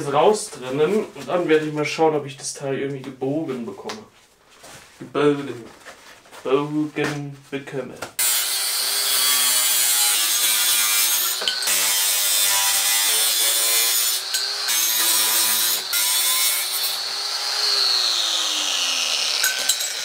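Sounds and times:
angle grinder cutting steel: 8.2 - 20.0.

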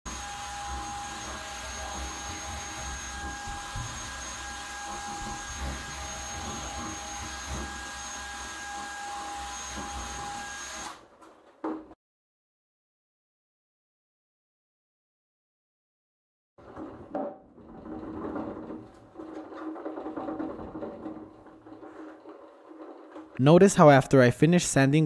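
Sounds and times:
sanding pad on plastic: 0.1 - 10.8
drill motor whine: 0.1 - 11.0.

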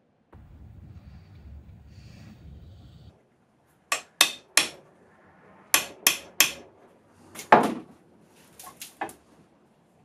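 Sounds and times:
hammer knocking on metal vice: 3.9 - 4.8.

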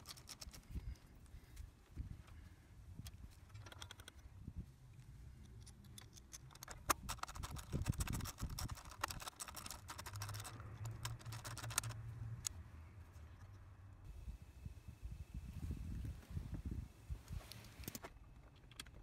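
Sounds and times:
socket ratchet clicking: 5.6 - 12.5.

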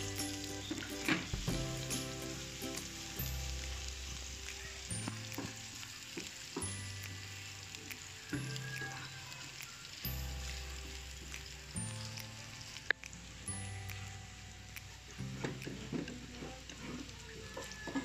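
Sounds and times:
garlic sizzling in oil: 0.0 - 18.0
soft background music: 0.0 - 18.0.

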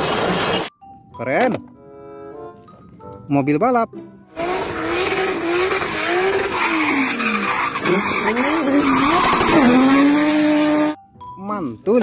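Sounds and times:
car engine revving: 4.3 - 11.0
tyres squealing: 4.5 - 10.9.

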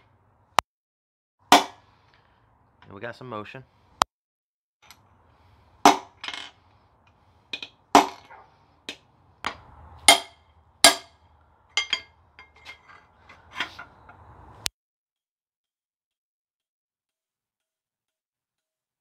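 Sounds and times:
hammer striking steel bar: 1.5 - 1.8, 5.8 - 6.4, 7.6 - 13.0.

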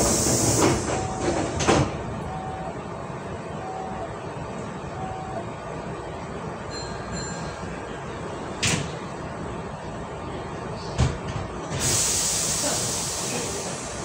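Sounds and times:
air hissing: 0.0 - 1.1, 11.8 - 14.0
train low rumble: 0.0 - 14.0.

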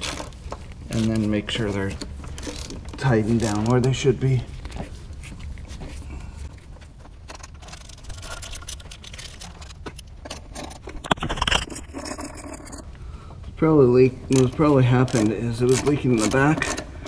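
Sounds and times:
gloved hands rustling: 0.0 - 13.5.

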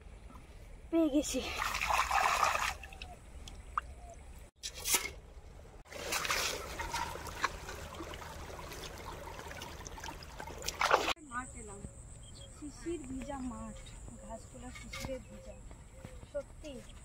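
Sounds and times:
water sloshing and trickling: 1.2 - 11.2.

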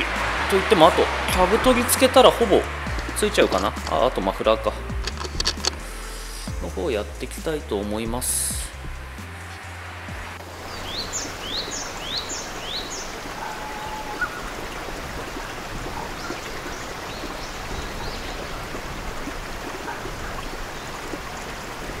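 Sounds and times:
stream over rocks: 0.0 - 6.9, 8.0 - 22.0
bird chirping: 10.6 - 14.6, 15.9 - 18.8.

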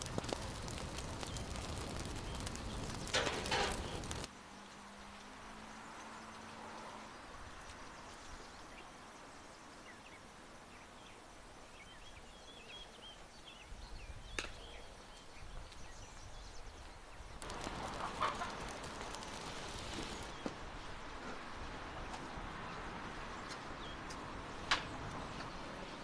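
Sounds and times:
rapid clicks and rustling: 0.0 - 4.3, 17.4 - 20.4
birds chirping: 0.0 - 6.8, 7.5 - 20.6
chickens clucking: 17.4 - 20.3.

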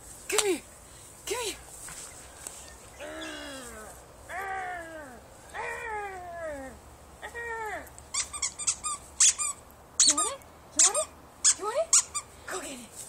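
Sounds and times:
dog toy squeaking: 8.1 - 12.3.

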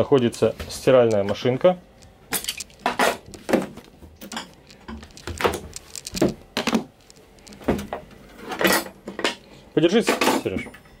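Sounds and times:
wooden drawers opening and shutting: 2.8 - 4.4.

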